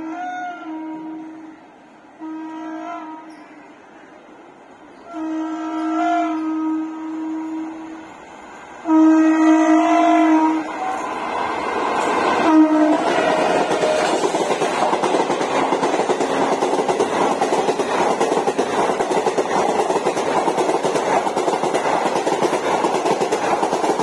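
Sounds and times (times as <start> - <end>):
train air horn blast: 0.0 - 3.7, 5.0 - 8.2, 8.8 - 11.2, 12.4 - 14.2
train coaches rattling past: 0.0 - 24.0.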